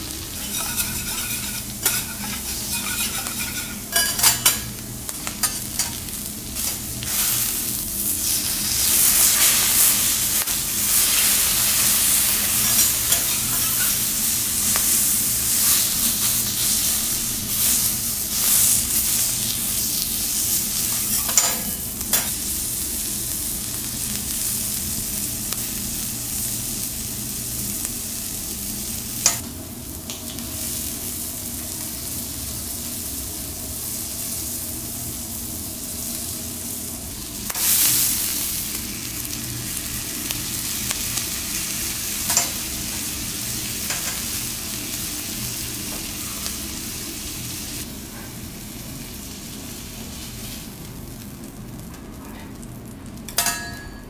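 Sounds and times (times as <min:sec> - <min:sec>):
seafood sizzling on a griddle: 0:00.0 - 0:51.9
metal spatula clacking on griddle: 0:00.4 - 0:04.7, 0:21.2 - 0:22.4, 0:53.3 - 0:54.0.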